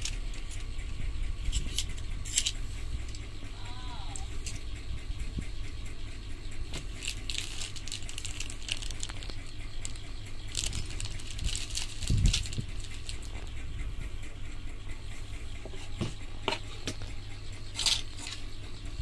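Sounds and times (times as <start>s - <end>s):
small hard parts clicking: 0.0s - 5.7s, 6.6s - 13.9s, 15.6s - 18.7s
steady low hum: 0.0s - 19.0s
plastic bag crinkling: 6.8s - 13.5s.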